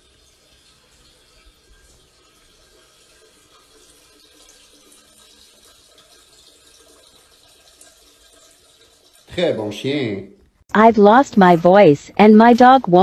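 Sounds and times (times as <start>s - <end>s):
liquid trickling into toilet: 0.0s - 10.0s.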